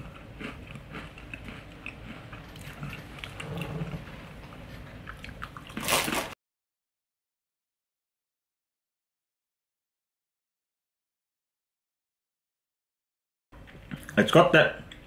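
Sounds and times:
cracker crunching: 0.0s - 6.4s.

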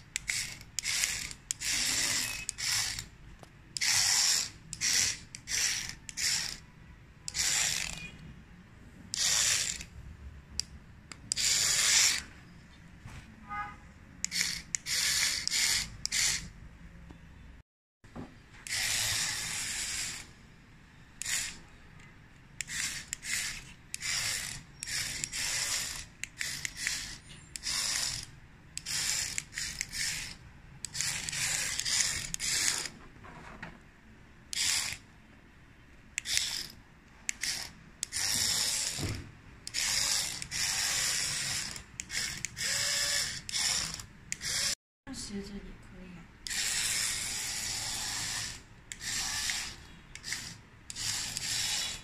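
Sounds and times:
small geared motor whirring: 0.2s - 3.1s, 3.8s - 6.6s, 7.3s - 8.1s, 9.1s - 9.9s, 14.2s - 16.5s, 18.6s - 20.3s, 21.2s - 21.6s, 22.6s - 32.9s, 34.5s - 35.0s, 36.2s - 44.8s, 46.4s - 52.0s.

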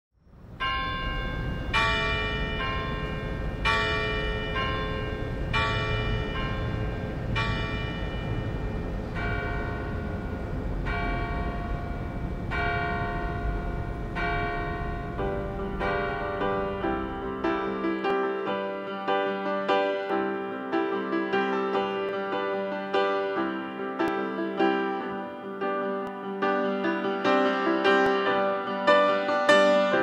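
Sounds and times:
low background rumble: 0.4s - 17.6s
large church bells ringing: 0.5s - 30.0s
piano: 0.5s - 30.0s.

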